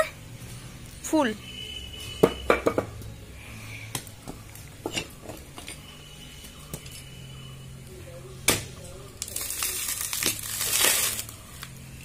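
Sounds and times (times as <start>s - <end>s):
coconuts knocking on concrete: 2.2s - 3.0s, 8.4s - 8.8s.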